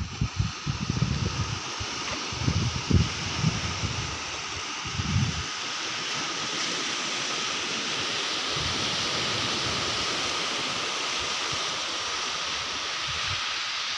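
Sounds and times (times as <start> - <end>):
small waves breaking on sand: 0.0 - 13.9.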